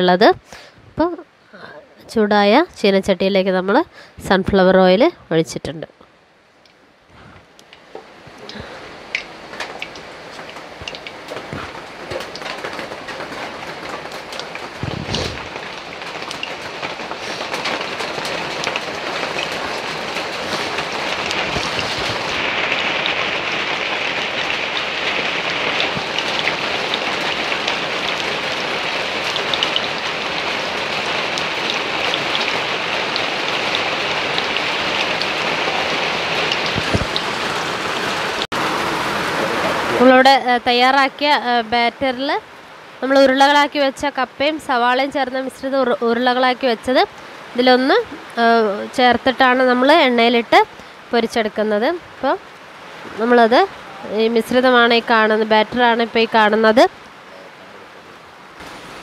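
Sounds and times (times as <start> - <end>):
oil sizzling and crackling: 7.6 - 38.6.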